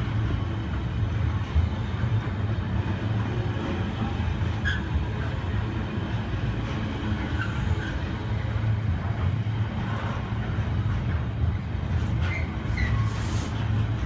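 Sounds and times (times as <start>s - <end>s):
train wheels rumbling on rail: 0.0s - 14.0s
wheel squeaks: 4.6s - 5.0s, 12.1s - 13.4s.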